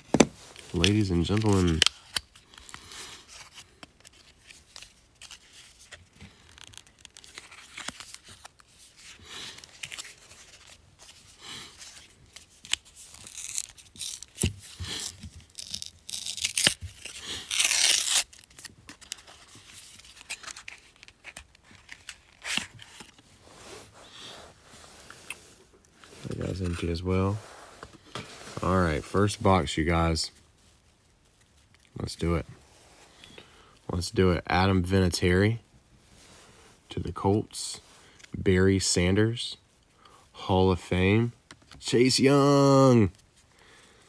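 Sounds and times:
cardboard ripping: 12.8s - 19.1s
cardboard rustling and scraping: 17.9s - 29.4s.

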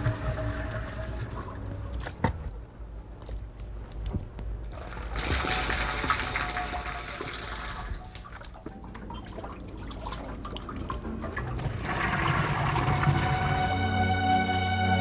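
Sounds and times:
liquid pouring and splashing: 4.7s - 13.8s.

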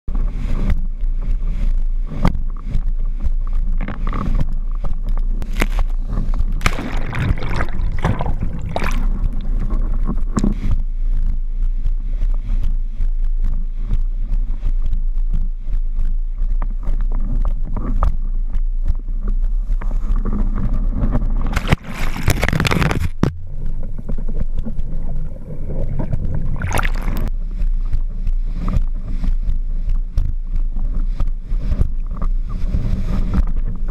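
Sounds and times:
wind rumble on microphone: 0.0s - 33.9s
rushing water: 6.6s - 10.6s, 21.5s - 23.1s, 25.9s - 27.3s.

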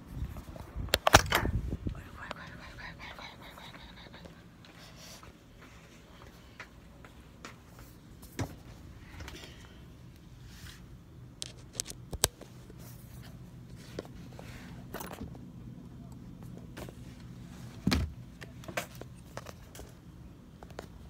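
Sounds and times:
steady low hum: 0.0s - 21.0s
phone handling clicks and rustles: 0.9s - 1.6s, 11.4s - 12.8s.

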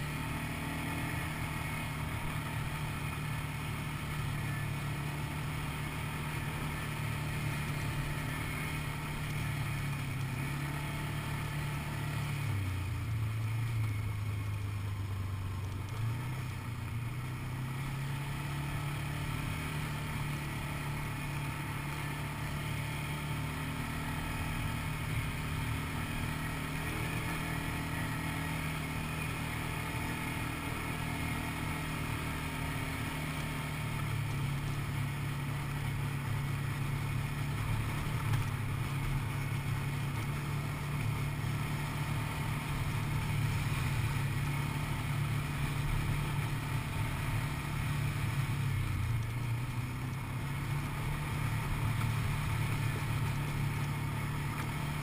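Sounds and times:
quad bike engine droning: 0.0s - 55.0s.

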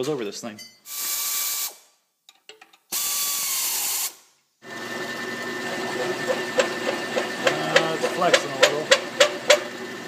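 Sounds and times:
loud hissing burst: 0.9s - 1.8s
machine spindle running: 4.7s - 10.0s.

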